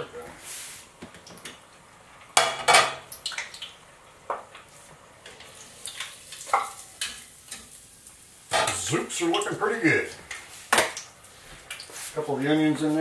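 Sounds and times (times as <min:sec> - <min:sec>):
hot oil sizzling: 0:00.0 - 0:13.0
metal utensil clattering on pot: 0:08.5 - 0:08.9.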